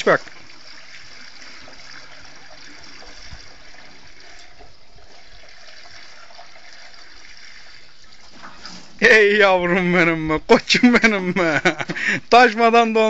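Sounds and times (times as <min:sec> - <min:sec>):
oil glugging through a funnel: 0:00.0 - 0:09.1.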